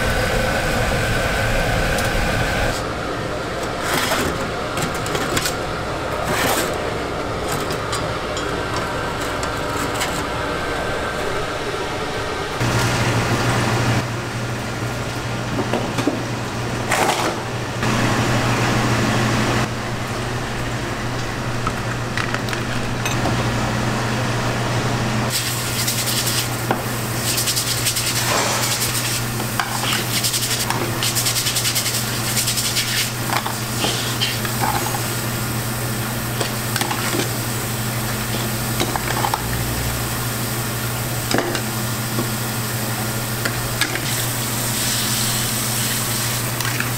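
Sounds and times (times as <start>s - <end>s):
steady low hum: 0.0s - 3.7s.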